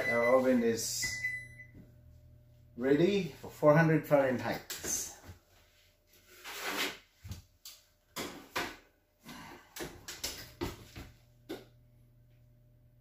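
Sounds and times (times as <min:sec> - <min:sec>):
low steady hum: 0:00.0 - 0:06.2.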